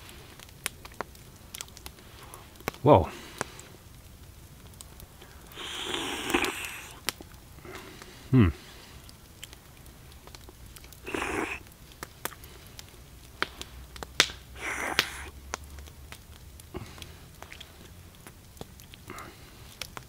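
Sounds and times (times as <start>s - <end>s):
short breathy rasps: 5.3s - 7.0s, 11.0s - 11.7s, 14.6s - 15.4s
person eating with mouth sounds: 5.6s - 7.0s, 11.0s - 11.6s, 14.6s - 15.4s.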